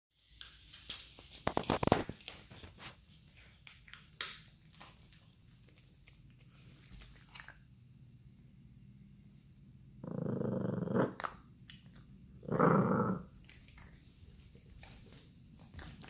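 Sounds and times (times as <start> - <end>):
dog crunching bone: 0.5 - 7.6
crinkly paper crackling: 1.1 - 7.4.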